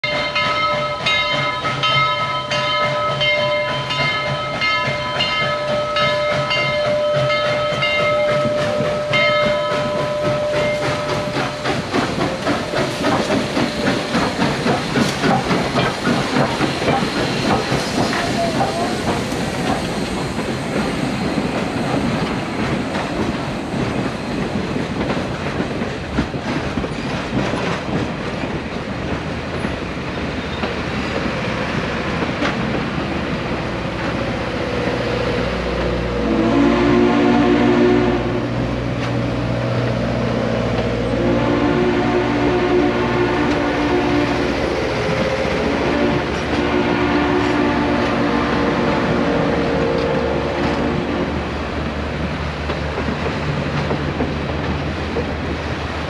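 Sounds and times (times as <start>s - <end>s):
steam locomotive chime whistle: 0.0s - 11.8s, 17.9s - 19.2s, 36.0s - 38.6s, 41.0s - 51.1s
train wheels clattering over rail joints: 0.0s - 36.1s, 43.3s - 56.0s.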